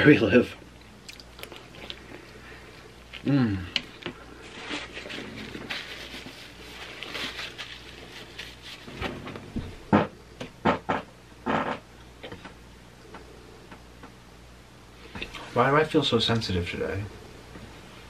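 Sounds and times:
person chewing: 1.0s - 2.4s.

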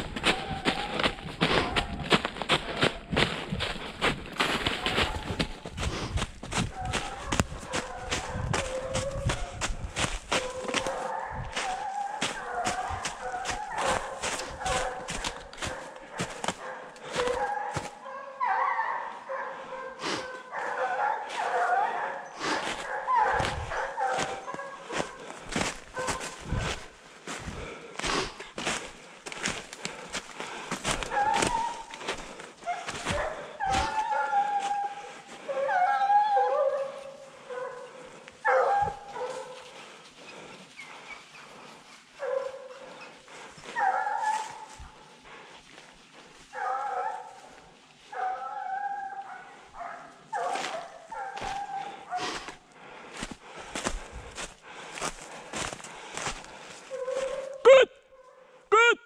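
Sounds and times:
hounds baying: 0.0s - 58.6s.

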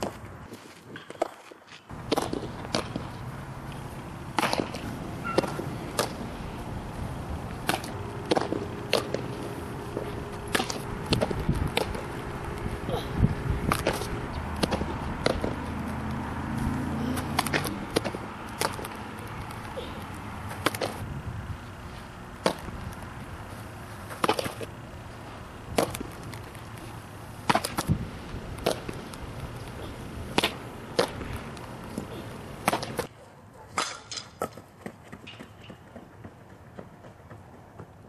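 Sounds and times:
bat hitting balls: 1.9s - 21.0s, 22.4s - 23.0s, 24.0s - 24.7s, 25.6s - 26.5s, 27.4s - 33.1s, 33.7s - 34.6s
balls smacking into leather gloves: 4.3s - 6.3s, 7.6s - 12.6s, 13.6s - 16.0s, 17.1s - 19.7s, 20.4s - 21.0s, 22.4s - 23.0s, 25.7s - 26.6s, 27.4s - 29.7s, 30.3s - 33.1s.

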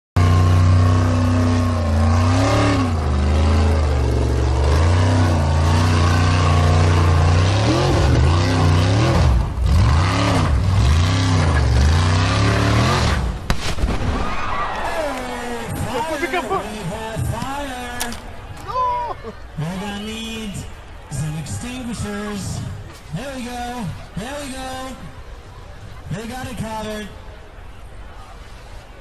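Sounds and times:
buggy engine revving: 0.2s - 13.5s.

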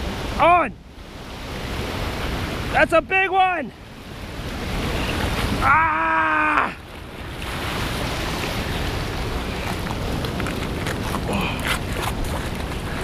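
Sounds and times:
surf breaking over rocks: 1.2s - 13.0s
person yelling excitedly: 5.6s - 6.8s.

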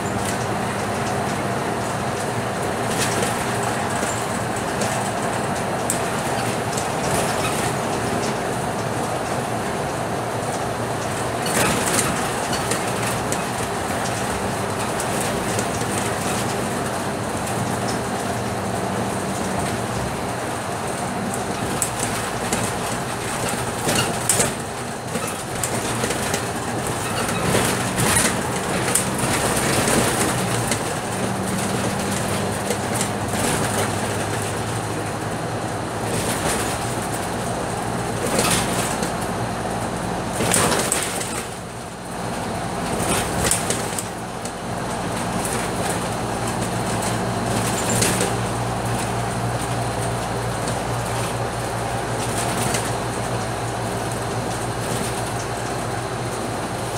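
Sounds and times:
bus diesel engine running: 0.0s - 56.9s
road and tyre noise: 0.0s - 56.9s
body knocks and rattles: 21.6s - 34.5s.

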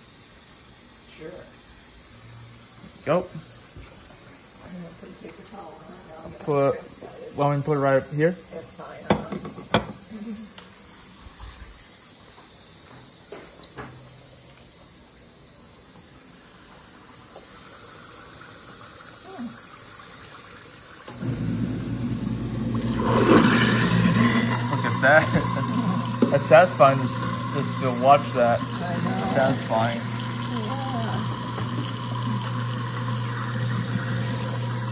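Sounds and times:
water running into a metal sink: 16.4s - 34.9s.

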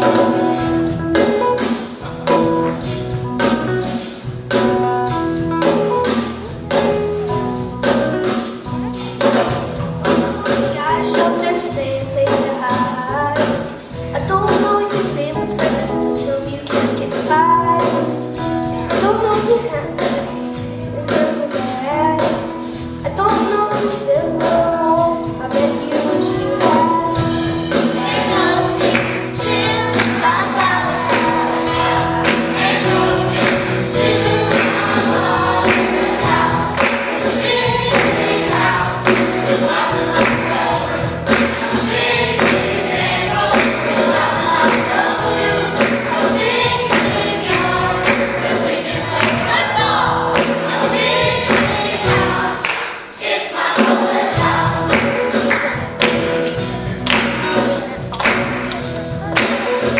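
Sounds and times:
children's choir singing: 0.0s - 2.5s, 25.5s - 59.9s
guitar: 0.0s - 52.5s, 54.1s - 59.9s
drums keeping a beat: 0.0s - 59.9s.

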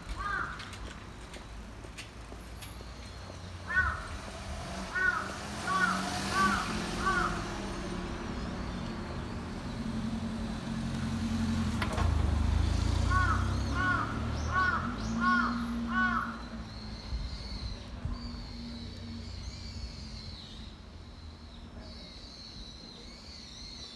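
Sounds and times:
road traffic rumble: 0.0s - 23.9s
crow cawing: 0.2s - 0.7s, 3.6s - 4.2s, 4.9s - 7.6s, 13.1s - 16.4s.

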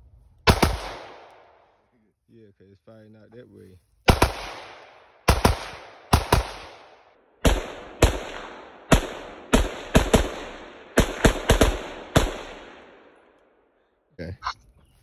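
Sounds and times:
pistol shots echoing: 0.5s - 1.8s, 4.1s - 13.4s.

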